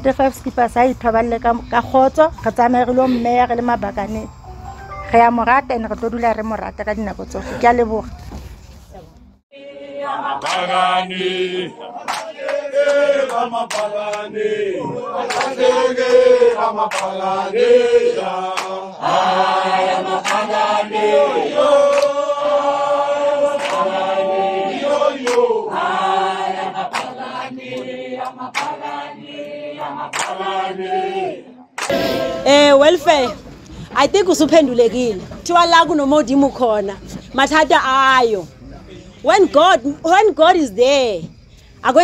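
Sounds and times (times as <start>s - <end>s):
group chant-like singing: 9.5s - 33.6s.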